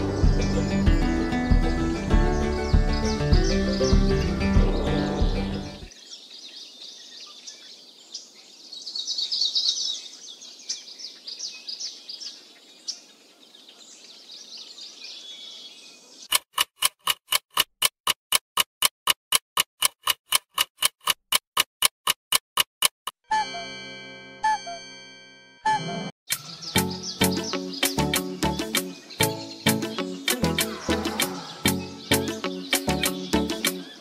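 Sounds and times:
music: 0:00.0 - 0:05.9, 0:23.3 - 0:26.1, 0:26.8 - 0:34.0
loud even ticking: 0:16.3 - 0:23.2.

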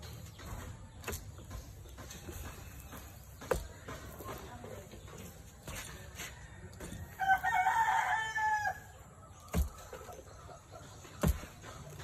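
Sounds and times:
rooster crowing: 0:07.1 - 0:09.0.

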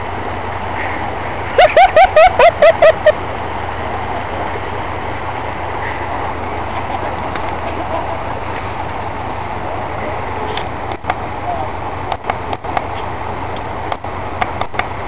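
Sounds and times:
vehicle engines droning: 0:00.0 - 0:15.0
person laughing hard: 0:01.6 - 0:03.2.

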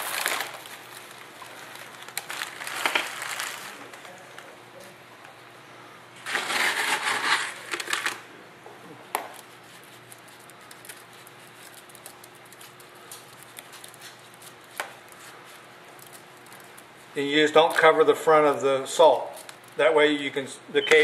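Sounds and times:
light ticks of crumbled mix: 0:09.1 - 0:21.0.

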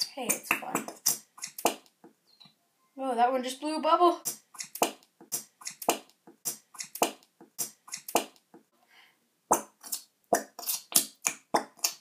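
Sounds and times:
glue bubbles popping: 0:09.5 - 0:12.0.

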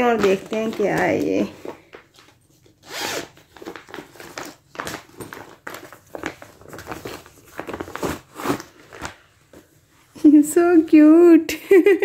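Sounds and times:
plastic bag rustling: 0:00.0 - 0:10.2.

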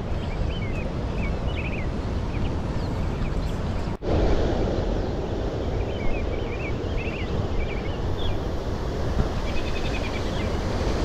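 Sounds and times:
small birds chirping: 0:00.0 - 0:04.0, 0:05.0 - 0:08.6, 0:09.4 - 0:10.8.

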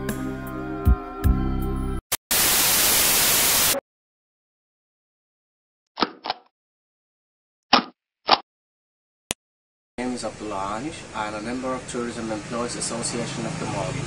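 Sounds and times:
static hiss burst: 0:02.3 - 0:03.8.

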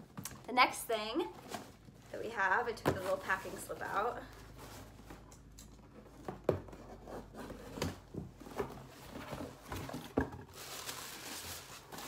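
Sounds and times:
cardboard box knocks and thumps: 0:06.1 - 0:10.6.

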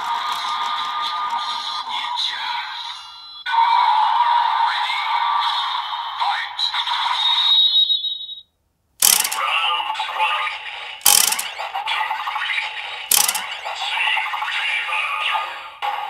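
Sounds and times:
toy sword selector clicks: 0:09.0 - 0:09.5, 0:11.0 - 0:11.5, 0:13.1 - 0:13.4.

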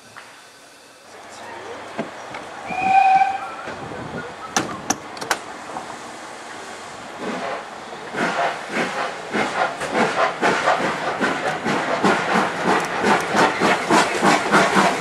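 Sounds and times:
steam locomotive chuffing: 0:01.7 - 0:15.0
train coupling clanks: 0:04.4 - 0:05.5.

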